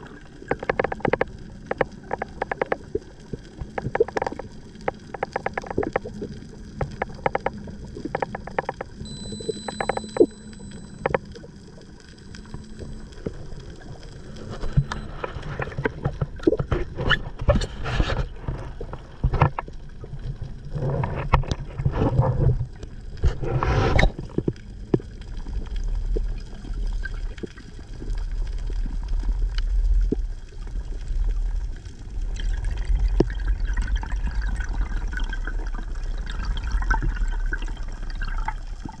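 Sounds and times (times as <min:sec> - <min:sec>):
low underwater rumble: 0:00.0 - 0:39.0
sharp clicks and ticks: 0:00.5 - 0:03.0, 0:03.6 - 0:16.2
gurgling rushes of water: 0:12.2 - 0:39.0.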